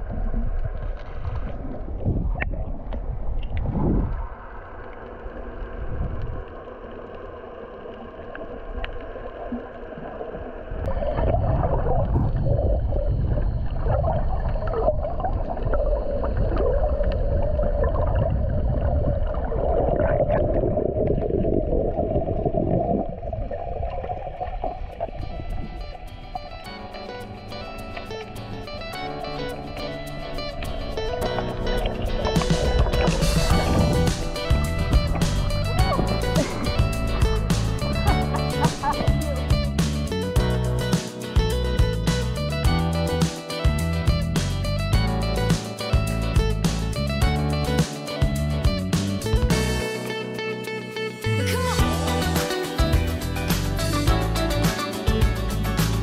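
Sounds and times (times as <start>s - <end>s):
muffled underwater gurgling: 8.5s - 26.6s, 28.7s - 39.8s
wavering hum: 22.4s - 49.8s.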